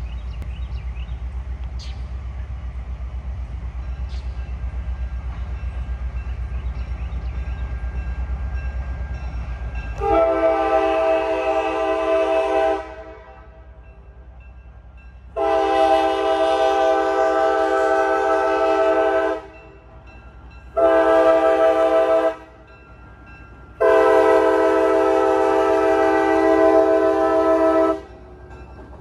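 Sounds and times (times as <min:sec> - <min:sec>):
locomotive pulsing rumble: 0:00.0 - 0:29.0
locomotive air horn blasts: 0:10.0 - 0:13.7, 0:15.4 - 0:19.6, 0:20.8 - 0:22.6, 0:23.8 - 0:28.2.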